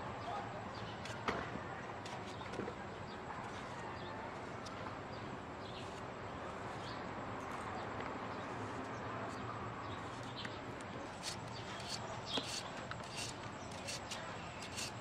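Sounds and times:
knife cutting vegetables: 11.2 - 15.0.

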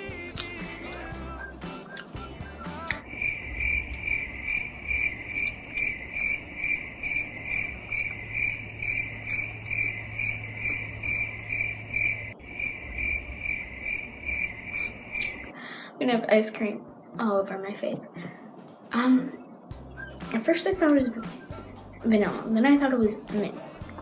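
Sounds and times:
cricket chirping: 3.0 - 15.5.

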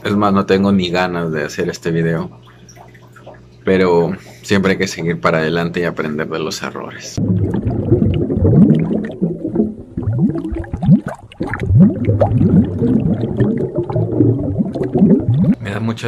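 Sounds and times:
low rumble: 7.2 - 15.6
underwater bubble gurgles: 7.2 - 15.6.

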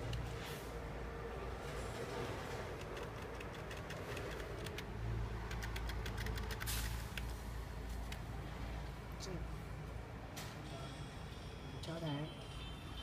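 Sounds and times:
keyboard typing clicks: 2.8 - 4.9, 5.5 - 7.3.

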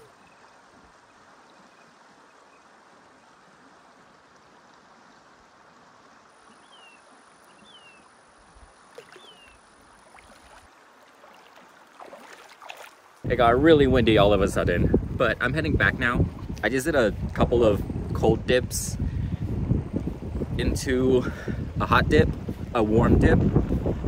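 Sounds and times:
murmur of water: 0.0 - 14.2
person splashing in water: 8.9 - 13.2.

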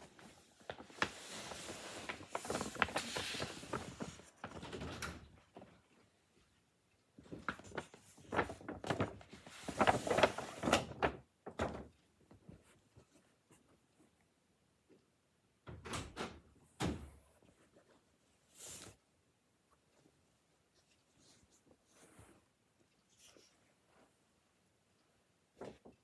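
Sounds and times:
paper bag rustling: 0.0 - 4.8, 7.2 - 11.6.

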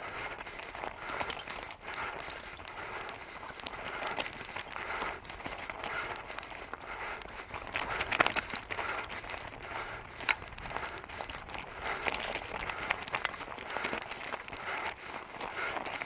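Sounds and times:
tyre crackling over stones: 0.0 - 16.0.

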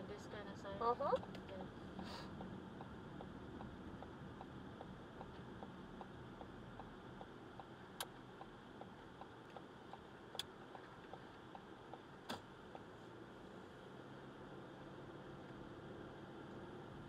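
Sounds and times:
turn signal ticking: 1.1 - 12.9.

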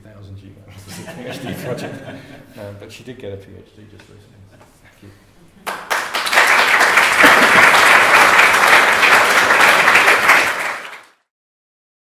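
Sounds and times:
audience applauding: 5.6 - 11.3.

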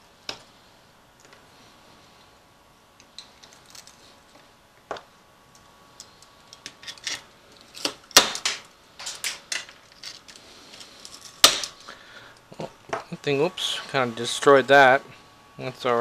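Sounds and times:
loud cracks: 7.8 - 8.7, 11.4 - 11.8.

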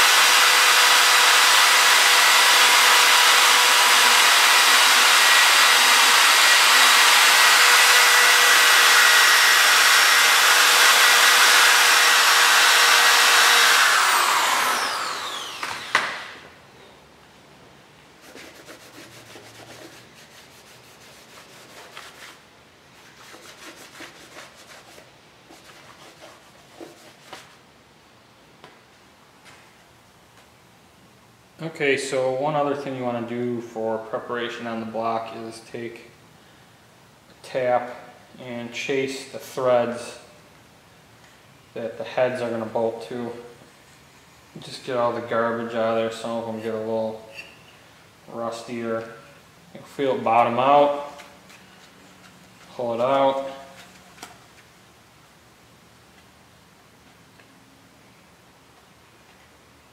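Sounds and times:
rotary tool whining against metal: 0.0 - 16.4
faint rag wiping: 18.2 - 27.6.

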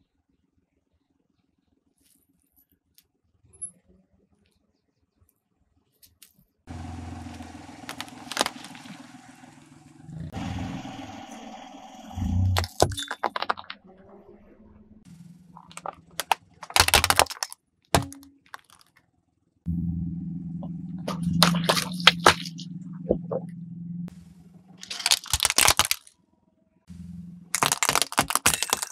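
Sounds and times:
engine hum: 6.7 - 18.7, 19.5 - 28.9
tyre crushing porcelain and plastic: 7.8 - 8.9, 12.4 - 13.8, 15.5 - 19.0, 21.1 - 22.6, 24.8 - 26.1, 27.5 - 28.9.

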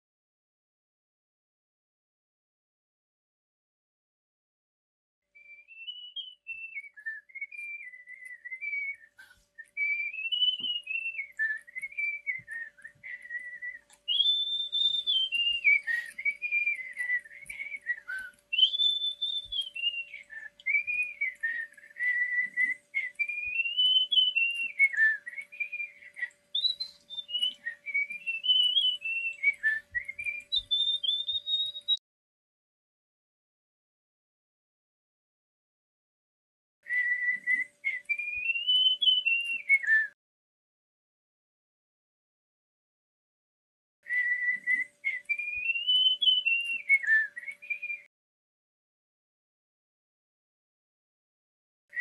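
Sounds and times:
person whistling a tune: 5.4 - 32.0, 36.8 - 40.2, 44.0 - 48.1.

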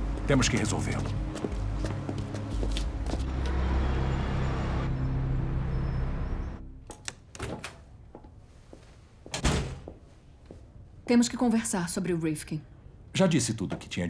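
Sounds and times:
low droning score: 0.0 - 6.9.

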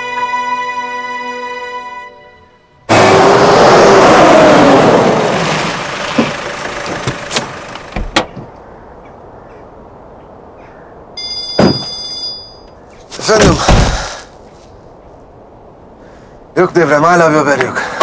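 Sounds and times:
low outdoor background: 0.0 - 18.0
knocks and thuds: 13.3 - 14.2.

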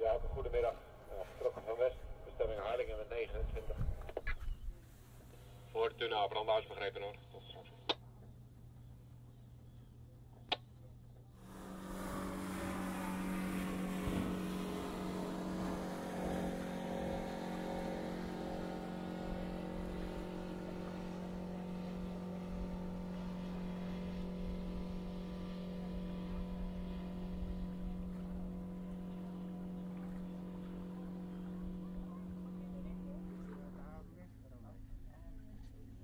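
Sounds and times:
boat engine humming: 0.0 - 36.0
water and wind rushing: 11.4 - 33.5.

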